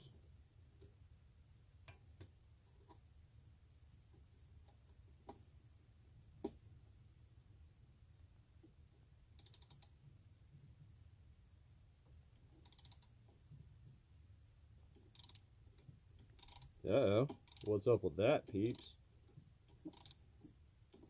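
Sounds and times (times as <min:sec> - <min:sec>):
ratchet clicks: 0:09.4 - 0:09.9, 0:12.6 - 0:13.1, 0:15.0 - 0:15.4, 0:16.2 - 0:17.7, 0:18.6 - 0:18.8, 0:19.7 - 0:20.2
torque wrench clicks: 0:09.4 - 0:09.9, 0:12.6 - 0:13.1, 0:15.2 - 0:15.4, 0:16.4 - 0:16.7, 0:17.3 - 0:17.7, 0:19.9 - 0:20.2.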